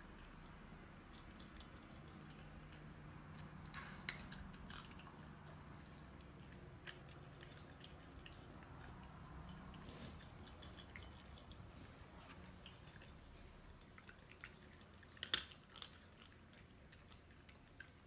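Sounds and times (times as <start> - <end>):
cats crunching dry kibble: 13.9 - 18.0.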